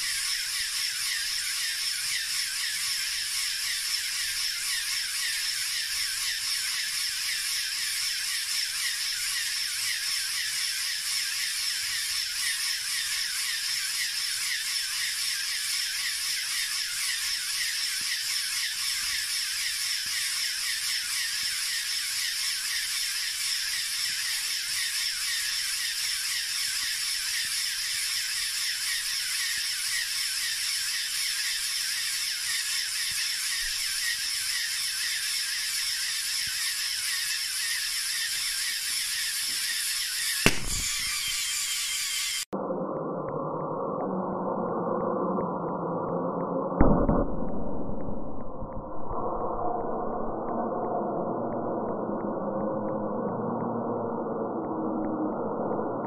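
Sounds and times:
toy air compressor whirring: 0.0 - 42.6.

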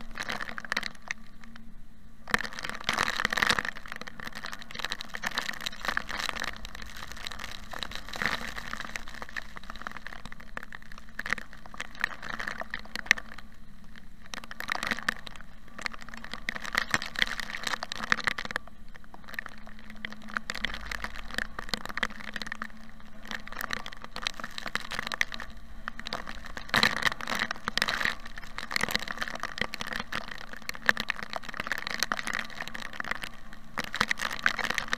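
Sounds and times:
rain hitting car windshield: 2.3 - 34.9.

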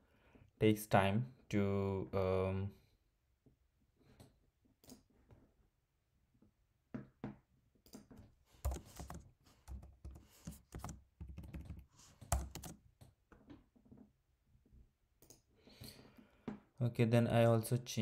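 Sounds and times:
typing on computer keyboard: 7.9 - 12.8.

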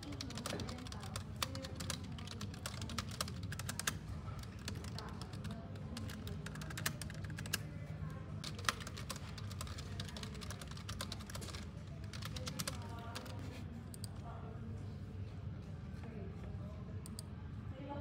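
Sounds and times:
keyboard typing: 0.0 - 14.1.

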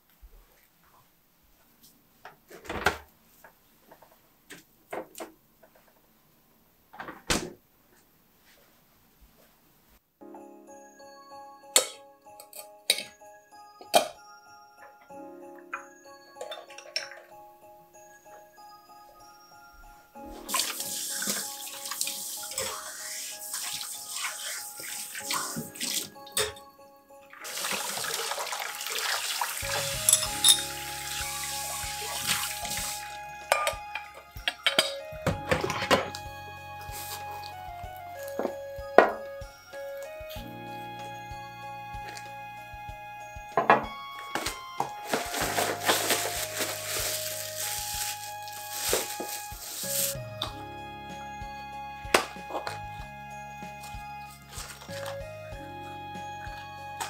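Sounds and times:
soft background music: 10.2 - 57.0
dishes clinking in rack: 16.4 - 17.3, 26.3 - 26.6, 29.8 - 30.7, 34.5 - 36.2
tap water running into sink: 20.5 - 26.1, 27.4 - 33.1.

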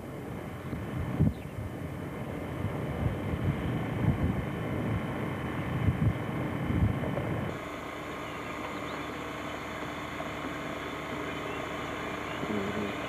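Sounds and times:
faint low hum: 0.0 - 13.0
wind buffeting microphone: 0.3 - 7.6.

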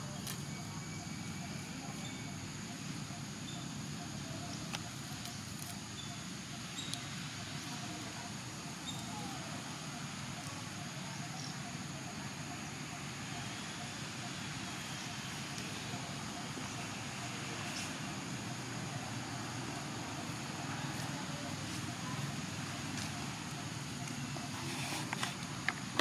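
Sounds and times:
faint high chirps: 0.0 - 7.8.

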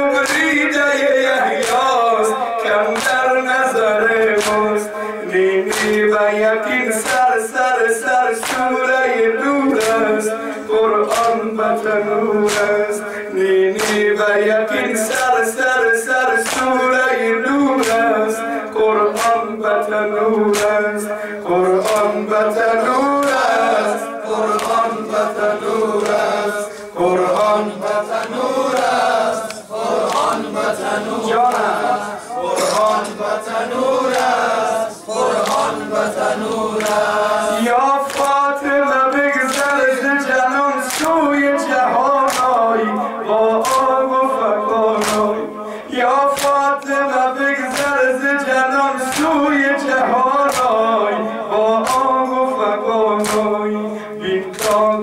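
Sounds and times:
man singing a lament through microphone: 0.0 - 55.0
hands slapping chests: 1.6 - 2.0, 2.6 - 3.3, 4.2 - 4.7, 5.7 - 6.1, 8.4 - 8.8, 9.7 - 10.2, 11.0 - 12.9, 13.8 - 14.1, 16.4 - 16.8, 17.8 - 18.1, 20.3 - 20.9, 21.8 - 22.1, 24.5 - 32.0, 36.7 - 37.2, 38.0 - 38.5, 39.1 - 39.9, 40.8 - 41.3, 42.2 - 42.6, 43.6 - 44.0, 45.0 - 45.4, 46.3 - 47.0, 47.7 - 48.0, 49.1 - 49.4, 50.5 - 50.8, 51.8 - 52.2, 53.2 - 53.6, 54.5 - 55.0.

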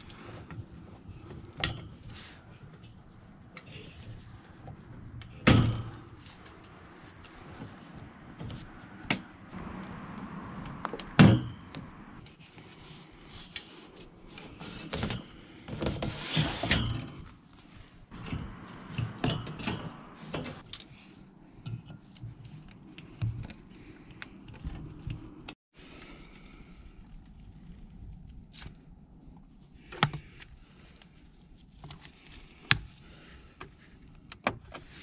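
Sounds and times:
rasping scrape: 12.3 - 17.4.

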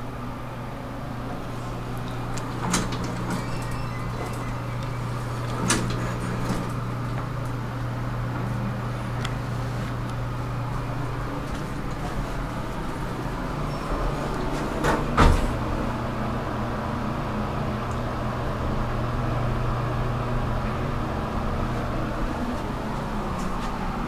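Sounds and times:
elevator hum: 0.0 - 24.0
elevator doors sliding shut: 0.9 - 18.2.

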